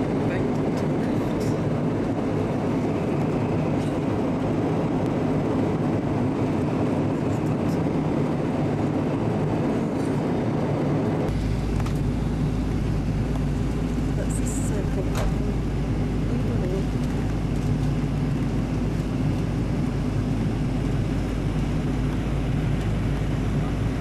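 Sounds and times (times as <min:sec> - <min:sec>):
jet engines roaring: 0:00.0 - 0:24.0
low cabin hum: 0:00.0 - 0:24.0.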